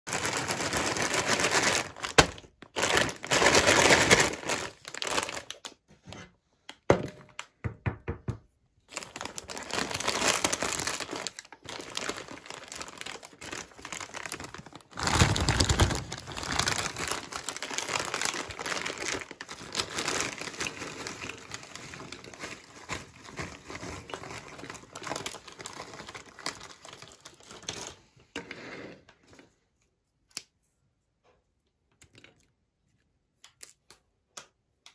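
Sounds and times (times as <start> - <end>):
foil snack bag crinkling: 0.1 - 5.8, 8.9 - 28.0.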